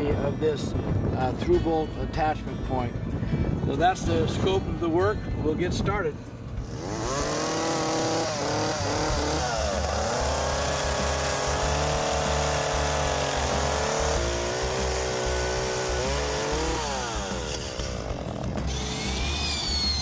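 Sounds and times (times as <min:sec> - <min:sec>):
chainsaw cutting wood: 0:06.6 - 0:20.0.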